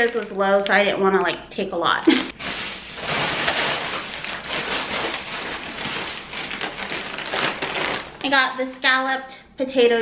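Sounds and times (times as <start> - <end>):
plastic and foil bags crinkling: 2.3 - 8.9.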